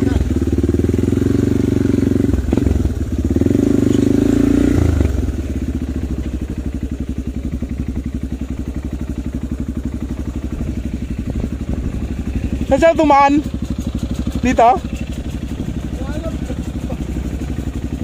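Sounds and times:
motorcycle engine running: 0.0s - 18.0s.

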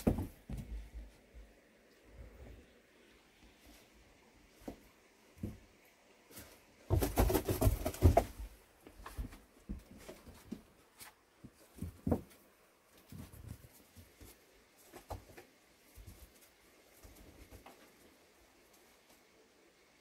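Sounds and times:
rustling and knocking: 0.0s - 1.2s, 6.4s - 18.1s.

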